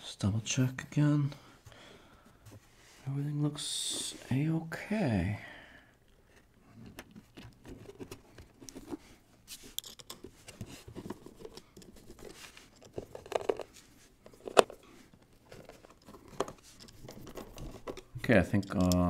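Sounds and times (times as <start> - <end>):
scraping and rustling: 6.2 - 18.8.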